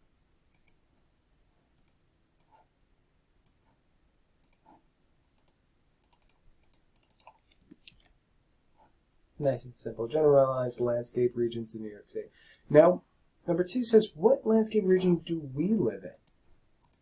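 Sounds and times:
mouse and keyboard clicks: 0:00.5 - 0:00.8, 0:01.7 - 0:02.6, 0:04.4 - 0:08.2, 0:16.1 - 0:17.0.

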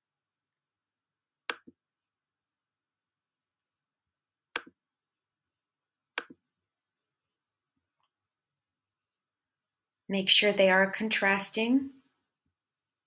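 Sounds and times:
mouse button clicks: 0:04.6 - 0:04.8, 0:06.2 - 0:06.4.

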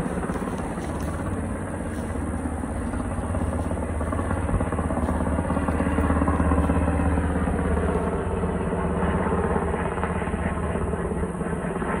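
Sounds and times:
helicopter rotor blades beating: 0:00.0 - 0:12.0
turbine engine: 0:00.0 - 0:12.0.

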